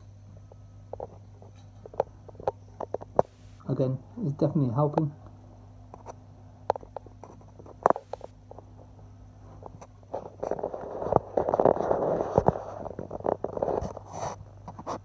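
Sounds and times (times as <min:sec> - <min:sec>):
steady low hum: 0:00.0 - 0:15.0
continuous rustling: 0:05.9 - 0:15.0.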